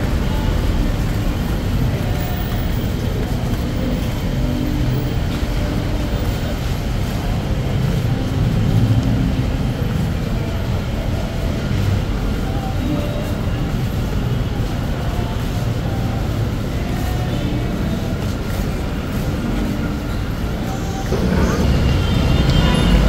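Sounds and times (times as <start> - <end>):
rumble of moving vehicles: 0.0 - 23.0.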